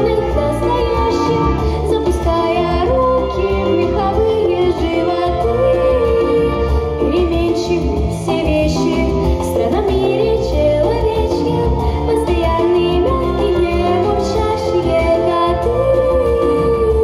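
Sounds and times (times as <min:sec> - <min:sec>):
girl singing into microphone: 0:00.0 - 0:17.0
instrumental music with steady beat: 0:00.0 - 0:17.0.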